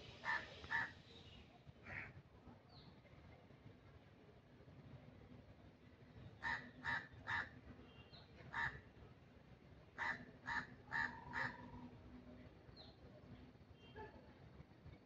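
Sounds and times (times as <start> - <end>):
crow cawing: 0.2 - 0.9, 6.4 - 7.5, 10.0 - 11.8.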